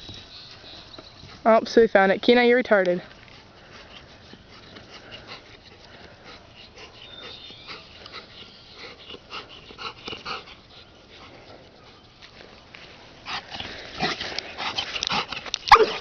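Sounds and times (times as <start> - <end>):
dog panting: 3.2 - 12.0, 13.2 - 16.0.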